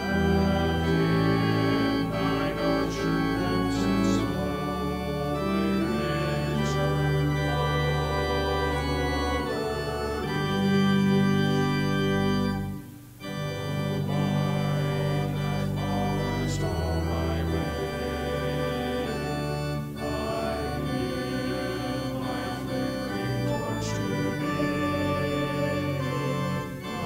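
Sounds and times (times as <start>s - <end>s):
church organ playing chords: 0.0s - 27.0s.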